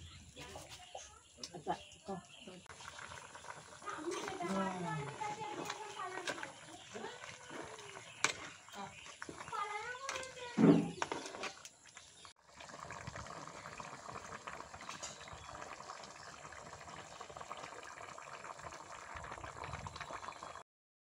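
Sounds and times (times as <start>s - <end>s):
curry bubbling at a boil: 0.8s - 20.6s.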